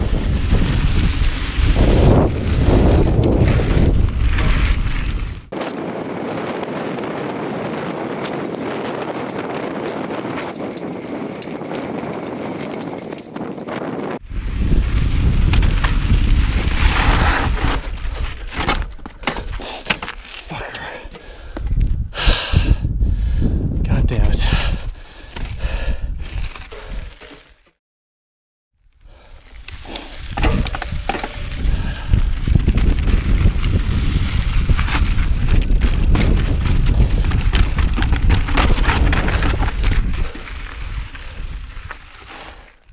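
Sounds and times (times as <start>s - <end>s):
wind buffeting microphone: 0.0s - 18.5s, 21.3s - 27.1s, 29.1s - 42.2s
mountain bike on dirt trail: 0.0s - 23.6s, 24.3s - 27.7s, 28.9s - 42.9s
bike knocking over rocks: 17.0s - 20.2s, 30.2s - 31.7s, 32.4s - 42.2s.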